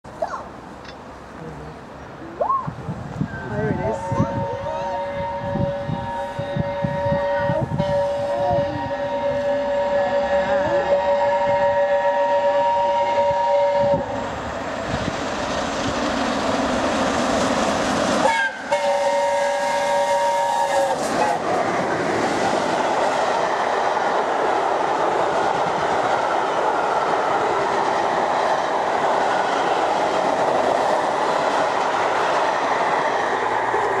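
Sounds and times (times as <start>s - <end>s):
train carriages rumbling past: 0.0s - 34.0s
steam locomotive whistle: 3.3s - 14.1s, 18.2s - 21.5s.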